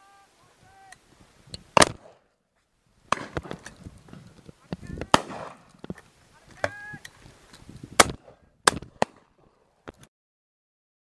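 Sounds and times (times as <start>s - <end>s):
shotgun shots: 1.8s - 2.2s, 3.1s - 3.7s, 5.1s - 5.7s, 8.0s - 9.3s.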